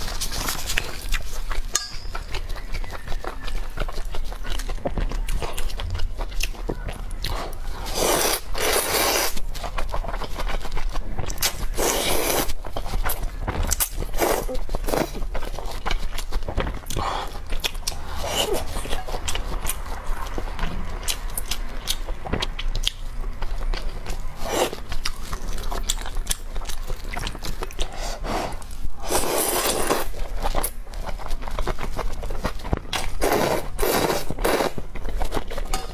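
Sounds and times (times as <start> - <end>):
chewing and mouth clicks: 0.0 - 35.9
noodles slurped: 7.3 - 12.6, 26.9 - 31.2, 33.0 - 35.4
noodles being slurped: 7.3 - 13.1, 13.7 - 20.5, 24.1 - 35.9.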